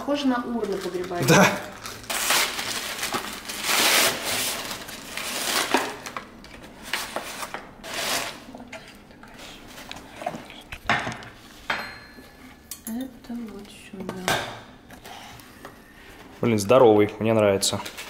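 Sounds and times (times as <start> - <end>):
packaging rustling and scraping: 0.4 - 8.6, 17.6 - 18.0.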